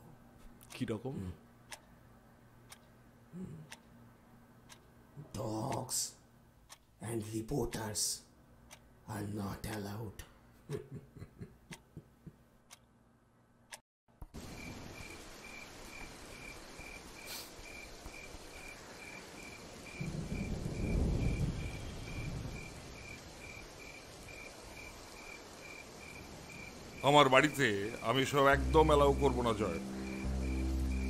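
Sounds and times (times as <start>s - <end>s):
crickets chirping: 14.4s - 31.0s
steady hiss: 14.4s - 31.0s
distant thunder rumble: 19.8s - 27.0s.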